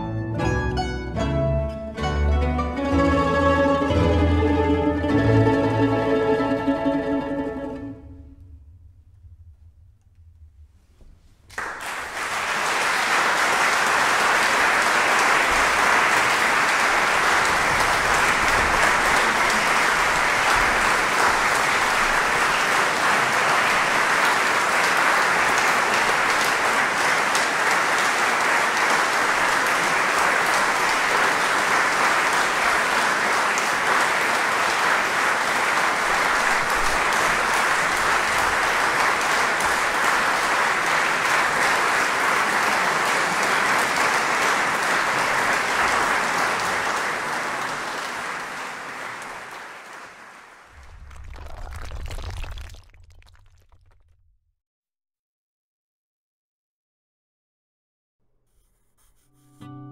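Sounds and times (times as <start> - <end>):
audience applauding: 11.5 - 54.0.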